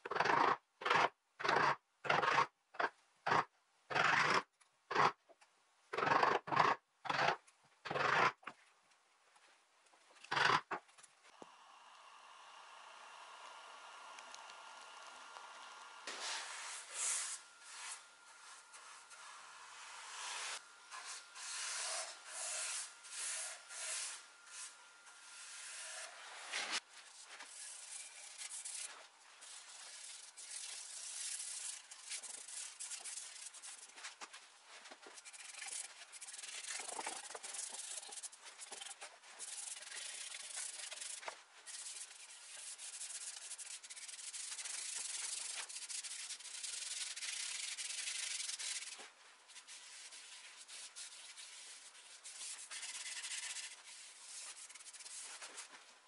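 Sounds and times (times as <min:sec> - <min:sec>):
pad and brush rubbing wood: 0:25.4 - 0:55.8.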